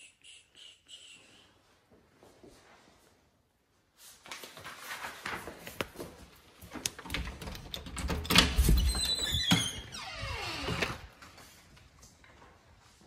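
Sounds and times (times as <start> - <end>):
door handling knocks and clicks: 6.9 - 9.8
wooden door opening: 6.9 - 11.2.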